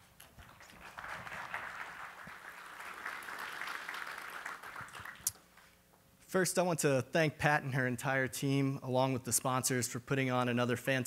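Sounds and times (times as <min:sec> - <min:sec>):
audience applauding: 0:00.0 - 0:05.6.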